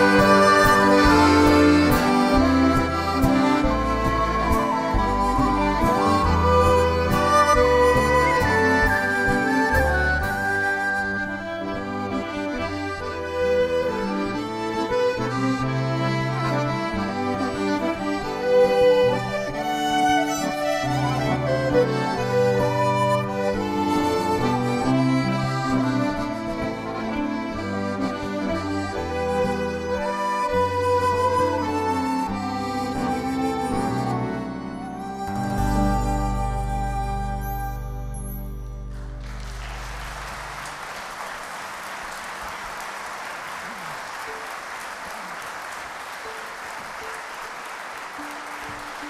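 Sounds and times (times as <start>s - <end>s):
audience applauding: 0.0s - 12.4s, 38.9s - 49.0s
folk ensemble playing a waltz: 0.0s - 40.8s, 46.2s - 49.0s.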